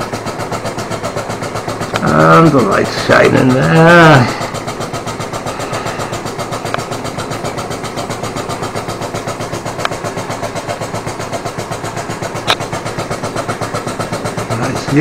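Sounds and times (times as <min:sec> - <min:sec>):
steam engine exhaust beating: 0:00.0 - 0:15.0
steam hissing: 0:01.6 - 0:07.8
sharp clicks: 0:12.4 - 0:12.7.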